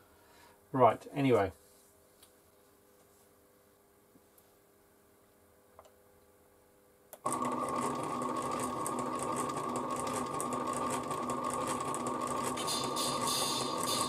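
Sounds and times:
stepper motor and gears whining: 7.3 - 14.0.

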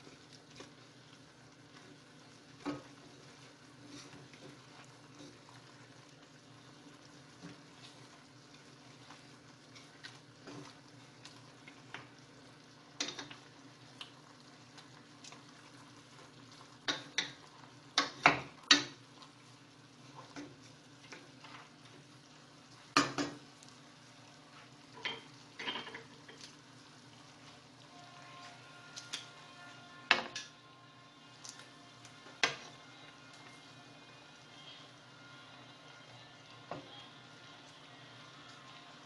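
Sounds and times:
spatula stirring chicken in pan: 0.0 - 30.1.

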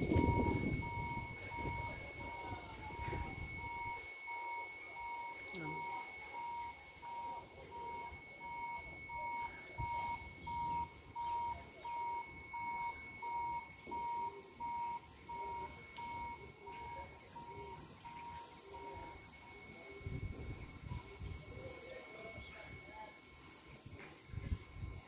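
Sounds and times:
birds chirping: 0.0 - 24.0
electronic beeper beeping: 0.0 - 25.0
steady thin high tone: 0.0 - 25.0.

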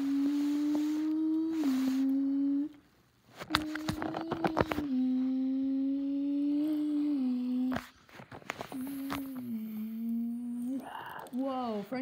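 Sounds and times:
child humming engine drone: 0.0 - 2.8, 3.4 - 7.8, 8.7 - 11.3.

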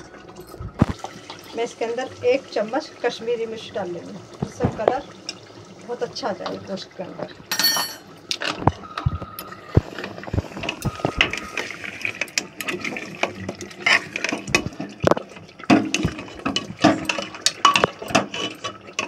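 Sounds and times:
gravy sloshing: 9.8 - 19.0
metal spoon scraping pot: 15.9 - 19.0.

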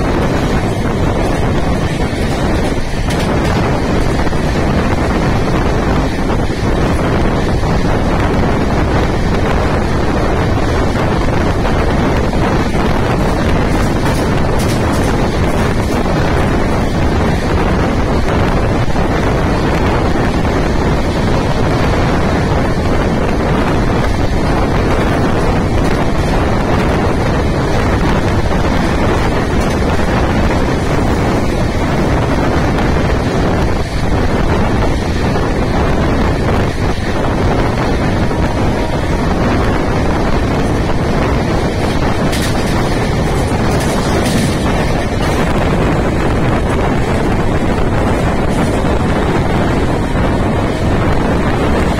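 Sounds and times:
moving train rumble: 0.0 - 51.9
wind buffeting microphone: 0.0 - 51.9.

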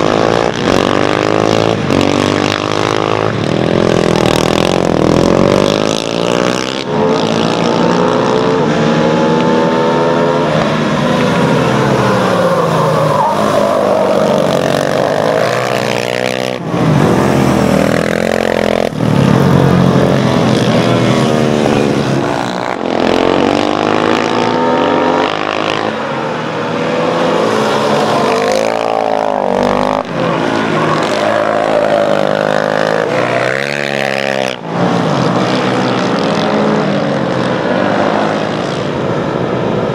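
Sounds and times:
quad engines revving: 0.0 - 38.9.

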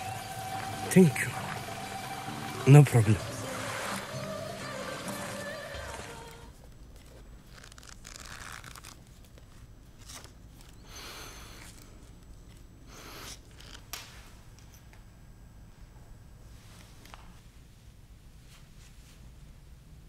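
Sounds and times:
paper rustling: 4.9 - 12.7.

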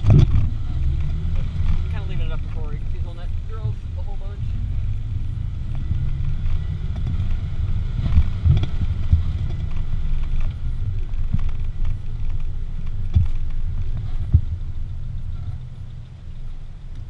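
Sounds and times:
vehicle knocks and clunks: 0.0 - 2.9, 5.7 - 15.9
off-road vehicle engine running: 0.0 - 17.0.

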